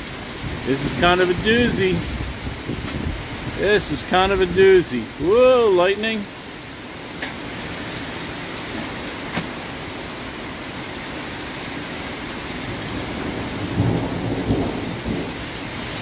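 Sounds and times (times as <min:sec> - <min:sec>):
low thunder rumble: 0:00.0 - 0:04.6, 0:12.6 - 0:16.0
heavy rain pouring: 0:00.0 - 0:16.0.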